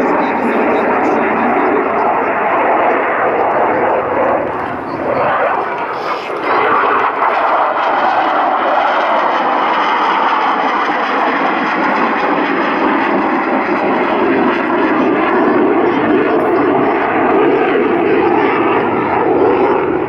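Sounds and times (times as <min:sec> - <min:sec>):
jet engine roar: 0:00.0 - 0:20.0.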